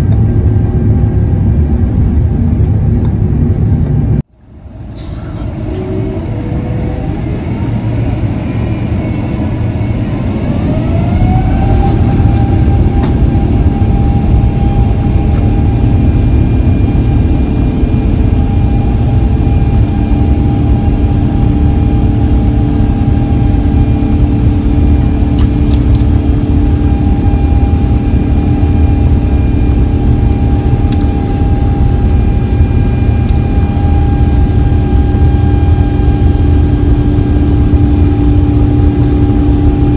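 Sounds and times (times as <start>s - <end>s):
heavy rumble: 0.0s - 39.9s
jet engines whining: 0.0s - 39.9s.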